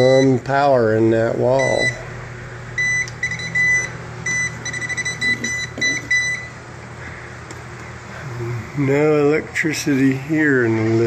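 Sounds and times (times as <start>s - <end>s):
voltage tester beeping: 0.0s - 0.4s, 1.5s - 2.0s, 2.8s - 6.6s.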